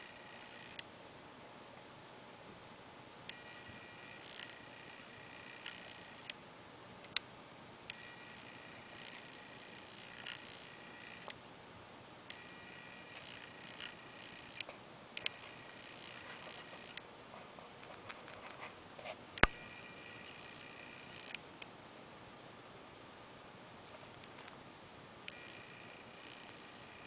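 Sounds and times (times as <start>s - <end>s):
small electric motor whining: 0.0s - 0.8s, 3.3s - 6.4s, 7.9s - 11.4s, 12.3s - 17.0s, 19.4s - 21.4s, 25.2s - 27.0s.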